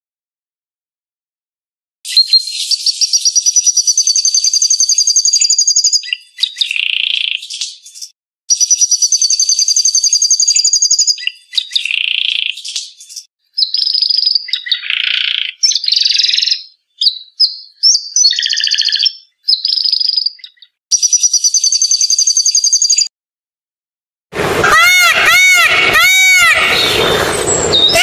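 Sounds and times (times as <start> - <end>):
songbird trilling and chirping: 2.1 - 23.1.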